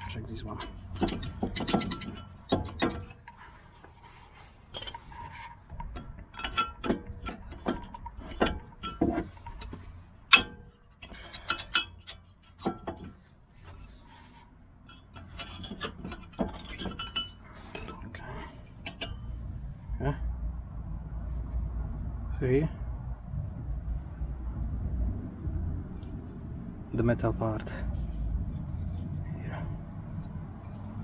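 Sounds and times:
metallic clicks and scraping: 0:00.0 - 0:19.8, 0:27.6 - 0:31.0.

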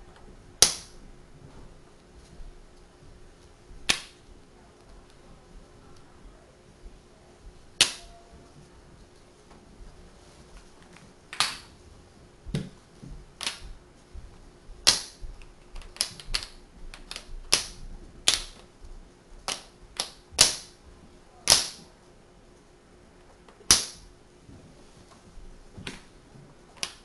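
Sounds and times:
wooden blocks clicking together: 0:11.3 - 0:11.7, 0:13.4 - 0:13.6, 0:14.8 - 0:18.7, 0:19.5 - 0:20.7, 0:21.5 - 0:21.8, 0:26.8 - 0:27.0.

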